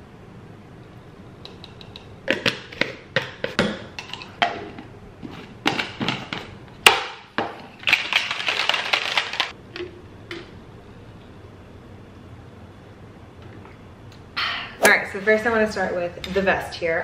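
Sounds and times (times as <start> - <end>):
shaker bottle rattling: 7.8 - 9.5.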